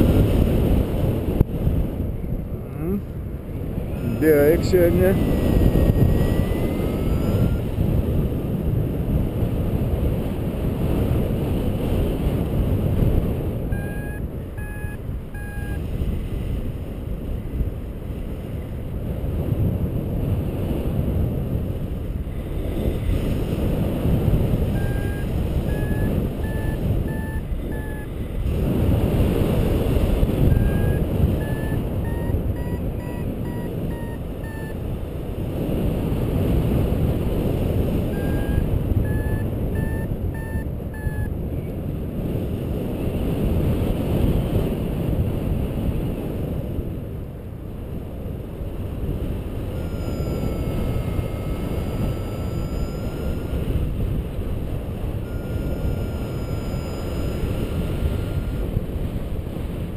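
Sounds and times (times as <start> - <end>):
wind rushing over microphone: 0.0 - 59.9
variometer beeping: 4.2 - 7.8, 13.7 - 15.8, 24.5 - 28.4, 30.2 - 34.8, 38.0 - 41.4, 49.7 - 53.8, 55.2 - 58.6.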